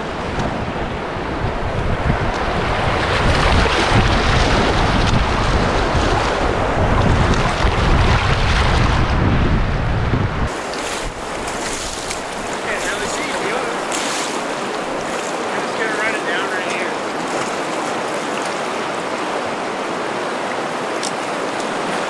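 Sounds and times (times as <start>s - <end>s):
wind buffeting microphone: 0.0s - 15.9s
rushing whitewater: 10.5s - 22.0s.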